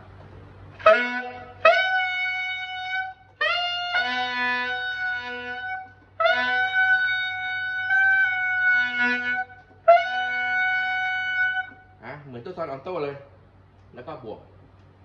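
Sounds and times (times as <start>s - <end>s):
tenor saxophone high note: 0.8s - 12.0s.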